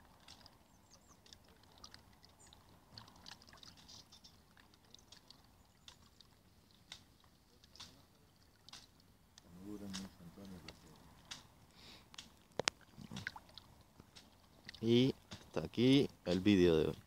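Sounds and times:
faint small clicks: 0:00.2 - 0:08.0.

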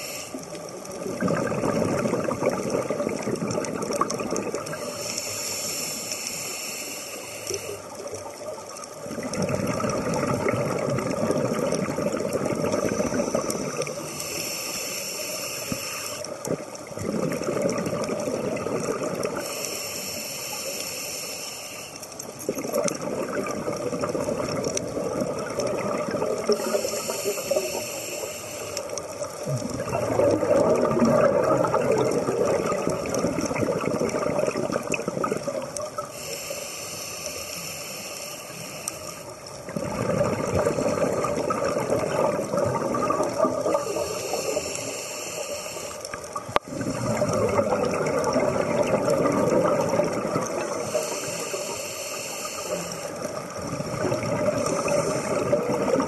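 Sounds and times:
diver inhaling through regulator: 0:00.0 - 0:00.6, 0:04.7 - 0:08.0, 0:12.3 - 0:16.5, 0:19.2 - 0:22.1, 0:26.4 - 0:29.0, 0:36.0 - 0:39.4, 0:43.6 - 0:47.7, 0:50.5 - 0:53.5, 0:54.4 - 0:56.0
gurgling exhaled bubbles: 0:00.6 - 0:05.2, 0:07.9 - 0:14.3, 0:16.3 - 0:19.6, 0:22.2 - 0:28.0, 0:28.7 - 0:36.2, 0:39.3 - 0:45.0, 0:46.0 - 0:51.8, 0:52.4 - 0:56.0.

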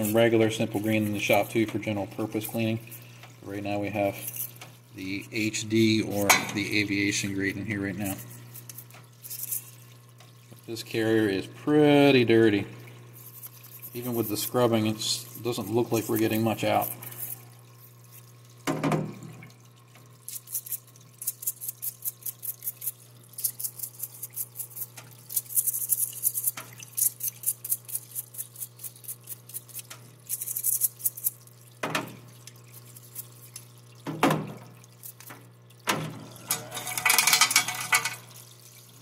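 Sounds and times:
brush scrubbing metal: 0:00.0 - 0:03.0, 0:13.2 - 0:17.5, 0:20.3 - 0:31.4, 0:36.5 - 0:38.3
parts washer hum: 0:00.0 - 0:39.0
running cleaning liquid: 0:00.0 - 0:39.0.

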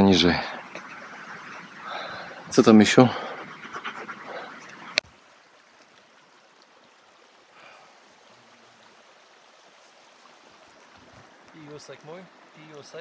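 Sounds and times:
stream running over rocks: 0:00.0 - 0:13.0.

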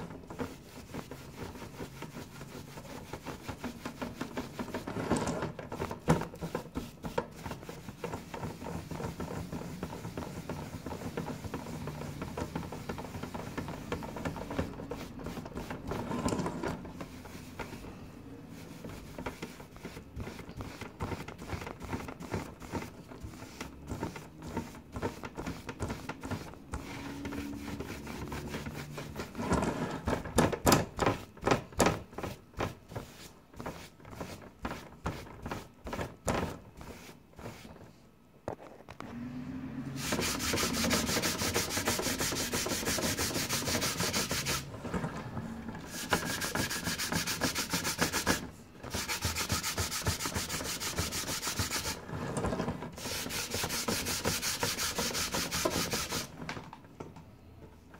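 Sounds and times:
pad scrubbing glass: 0:00.0 - 0:04.9, 0:05.7 - 0:16.2, 0:16.9 - 0:29.4, 0:39.9 - 0:44.8, 0:45.4 - 0:52.0, 0:53.0 - 0:56.3
brush sweeping over glass: 0:00.0 - 0:30.1, 0:32.1 - 0:37.8, 0:39.7 - 0:52.1, 0:53.0 - 0:56.3.

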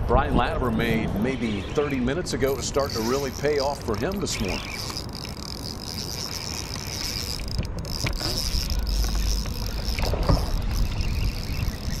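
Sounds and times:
fishing reel clicks: 0:02.4 - 0:12.0
high-pitched insect buzzing: 0:02.5 - 0:12.0.

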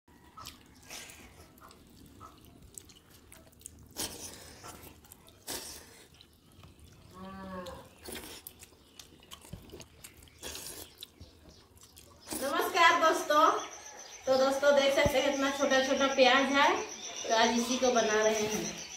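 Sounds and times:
chewing and squishing rice: 0:00.1 - 0:12.6.

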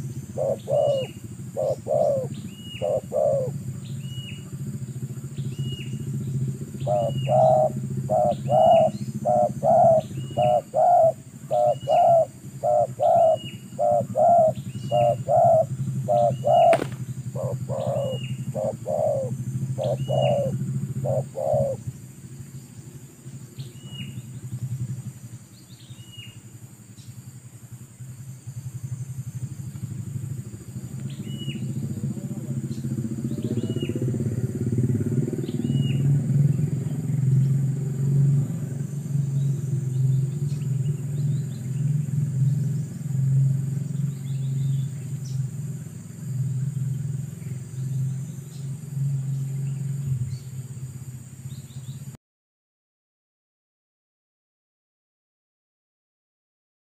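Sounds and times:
dove cooing: 0:00.0 - 0:03.8, 0:06.6 - 0:21.9, 0:31.1 - 0:36.5
small bird chirping: 0:00.0 - 0:27.3, 0:27.9 - 0:37.7, 0:38.6 - 0:52.2
engine hum: 0:00.0 - 0:52.2.

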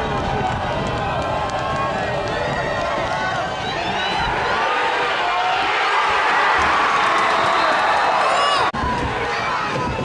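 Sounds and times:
crowd shouts: 0:00.0 - 0:10.0
stadium crowd cheering: 0:00.0 - 0:10.0.

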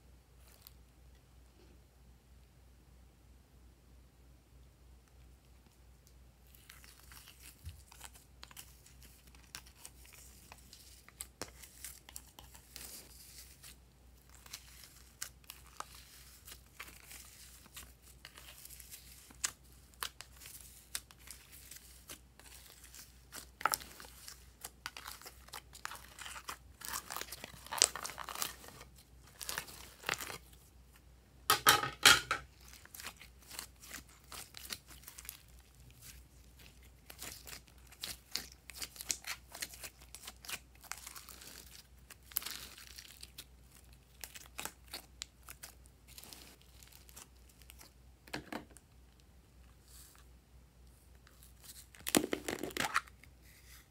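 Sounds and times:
sticky slime crackling and popping: 0:14.3 - 0:30.6, 0:32.4 - 0:47.9.

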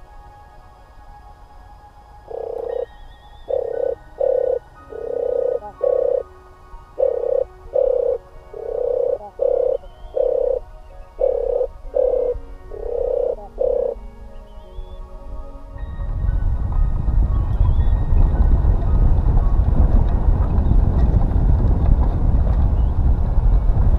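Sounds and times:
dove purring coos: 0:02.3 - 0:06.3, 0:07.0 - 0:14.0.

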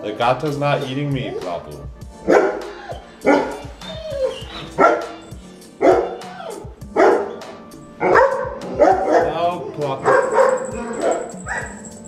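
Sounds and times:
dog barking: 0:02.2 - 0:09.4, 0:10.0 - 0:12.0.

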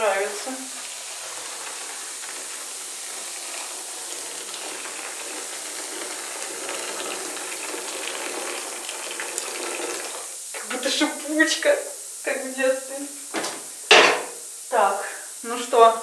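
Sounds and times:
water pouring into a basin: 0:00.0 - 0:10.4
bleach granules fizzing: 0:00.0 - 0:16.0.

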